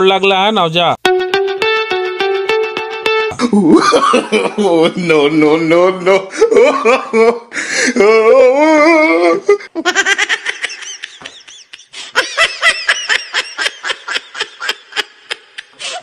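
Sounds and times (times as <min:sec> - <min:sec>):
person laughing: 0:03.3 - 0:16.0.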